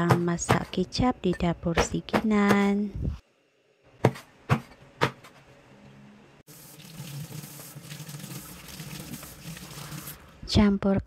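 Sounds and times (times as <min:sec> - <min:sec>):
kitchen tap running: 0:06.5 - 0:10.4.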